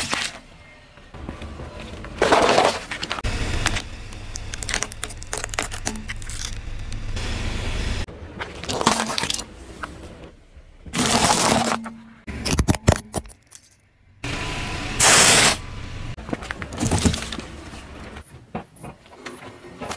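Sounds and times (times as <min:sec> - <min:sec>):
cardboard cartons being flattened: 0:02.2 - 0:07.1
hard plastic cracking: 0:03.4 - 0:07.2.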